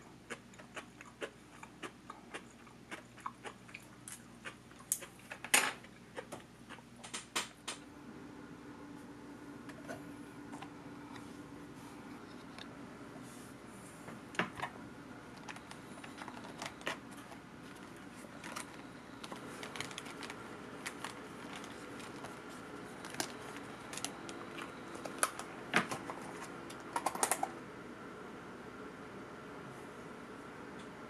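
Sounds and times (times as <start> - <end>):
plastic packaging crinkling: 15.3 - 26.5.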